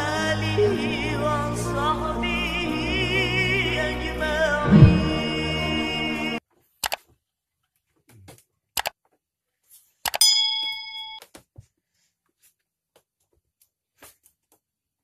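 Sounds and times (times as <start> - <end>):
sharp clicks: 8.8 - 9.0, 10.1 - 10.3
bell-like ding: 10.2 - 11.2.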